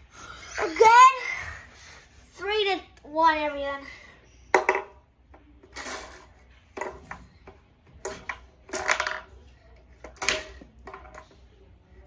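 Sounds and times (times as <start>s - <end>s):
plastic foosball table rattling: 5.6s - 9.4s, 10.0s - 11.4s.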